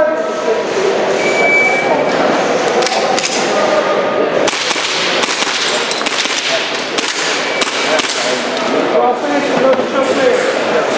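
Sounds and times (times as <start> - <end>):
airsoft pistol shots: 4.5 - 8.4.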